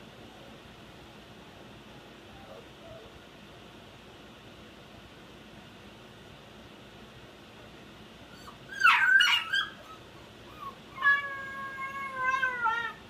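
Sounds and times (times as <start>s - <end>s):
puppy whining: 2.3s - 3.2s, 8.3s - 13.0s
puppy yelping: 8.3s - 13.0s.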